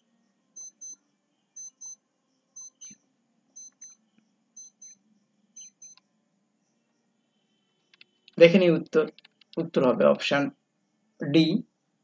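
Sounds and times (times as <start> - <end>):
short electronic beeps in pairs: 0.6 - 1.0, 1.6 - 2.0, 2.6 - 3.0, 3.6 - 4.0, 4.6 - 5.0, 5.6 - 6.0.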